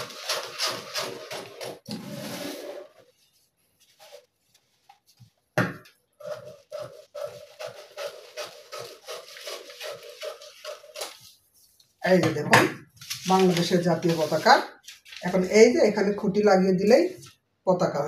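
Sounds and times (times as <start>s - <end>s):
scissors snipping paper: 0.0s - 1.8s, 6.4s - 11.2s
paper rustling: 0.0s - 5.6s, 6.2s - 12.0s, 12.9s - 15.8s.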